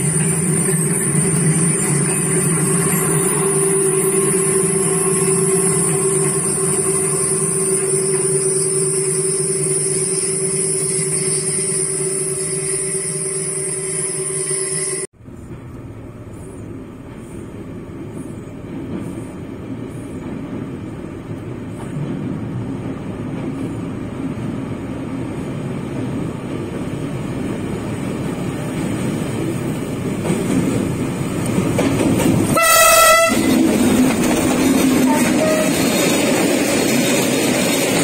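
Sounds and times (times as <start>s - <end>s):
locomotive engine and wheel rumble: 0.0s - 38.0s
locomotive horn blast: 32.5s - 33.8s, 35.0s - 36.0s.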